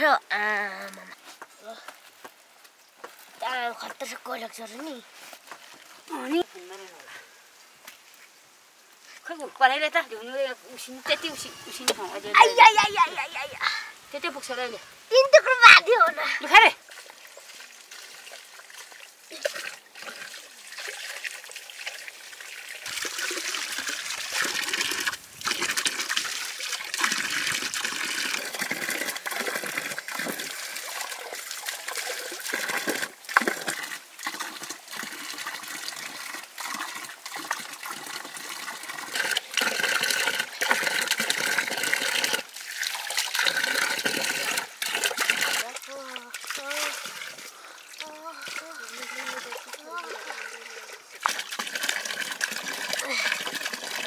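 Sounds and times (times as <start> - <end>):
water splashing onto stone: 14.1 - 54.0.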